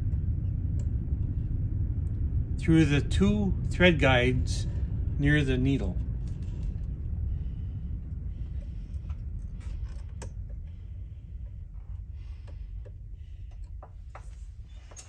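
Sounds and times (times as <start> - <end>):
low steady hum: 0.0 - 15.0
light clicks of thread handling: 8.6 - 10.7.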